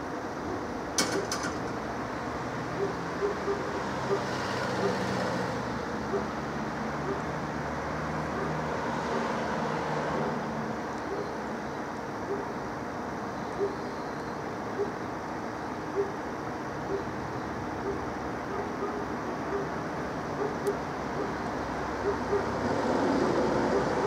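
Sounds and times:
road and outdoor noise: 0.0 - 24.0.

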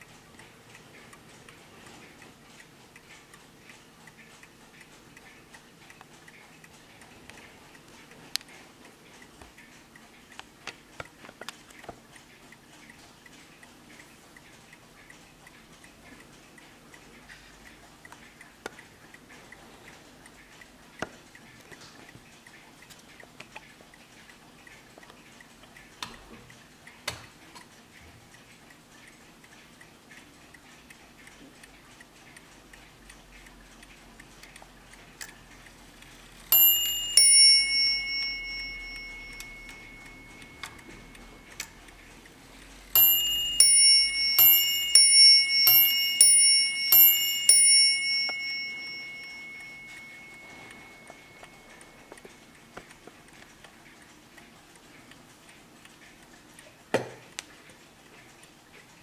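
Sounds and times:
mantel clock ticking: 0.0 - 59.0
clock bells striking: 36.5 - 41.8, 43.0 - 52.2.

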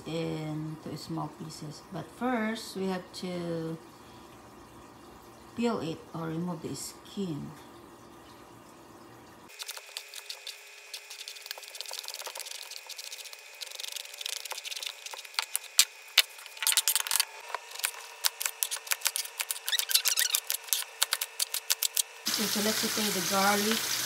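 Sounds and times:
blade scraping gourd skin: 9.6 - 22.2
knife cutting gourd: 15.1 - 22.1.

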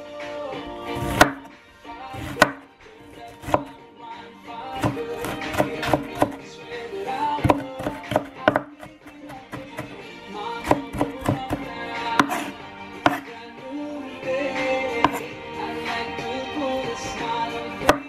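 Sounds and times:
background music: 0.0 - 18.0
knife chopping on wooden board: 1.0 - 3.8, 4.8 - 6.4, 7.4 - 13.4, 15.0 - 15.3, 17.8 - 18.0.

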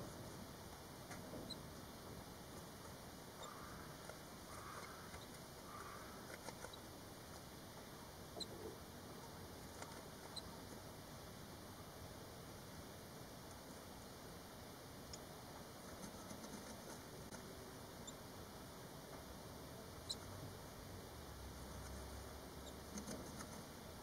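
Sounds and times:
clicks and rustles of nestlings: 2.6 - 6.8, 22.9 - 23.7.

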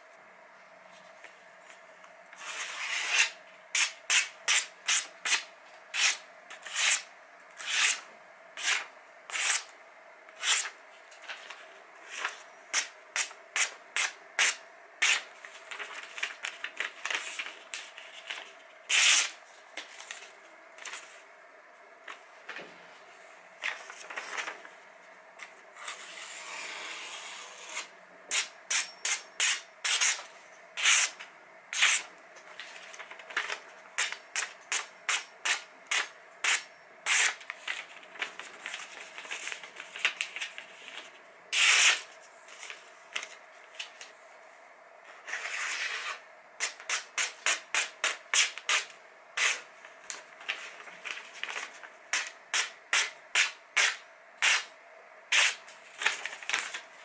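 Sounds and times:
paper page rustling: 15.4 - 18.7, 23.6 - 24.8, 32.4 - 34.2, 37.4 - 41.2, 49.8 - 52.0, 55.8 - 57.0.

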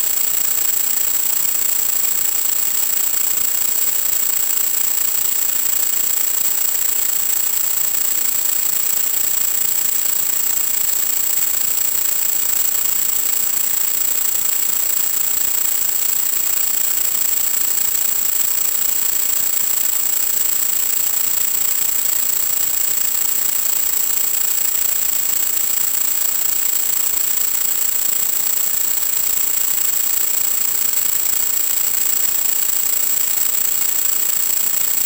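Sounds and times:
thin high-pitched whine: 0.0 - 35.0.

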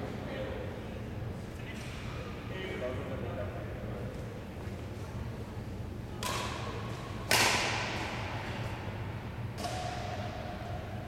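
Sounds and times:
sharp knocks echoing in a hall: 6.2 - 11.0.

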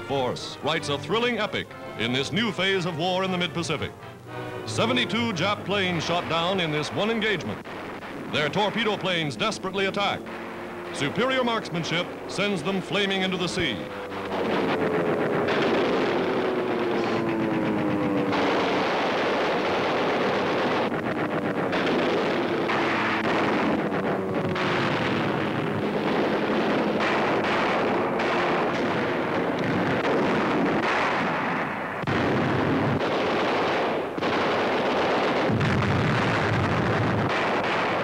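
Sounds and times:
explosions: 0.0 - 38.0
heavy anti-aircraft gunfire: 0.0 - 38.0.

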